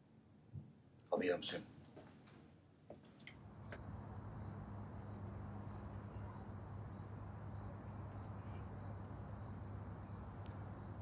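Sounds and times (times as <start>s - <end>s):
faint background hum: 0.0s - 11.0s.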